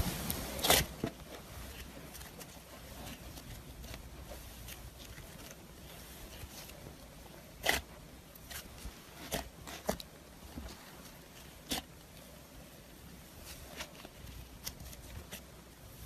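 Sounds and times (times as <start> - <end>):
hands squishing slime: 0.0 - 12.0.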